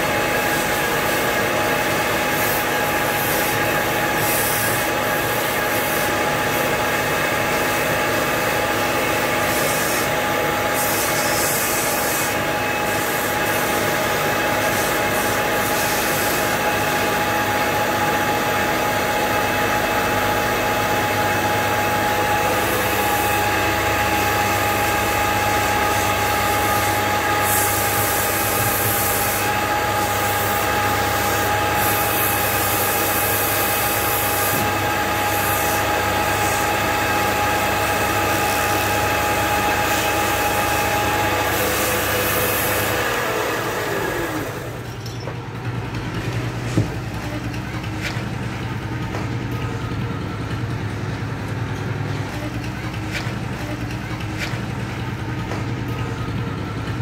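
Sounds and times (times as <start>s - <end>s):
wood lathe whining: 21.7s - 44.9s
tool rubbing spinning wood: 21.8s - 45.0s.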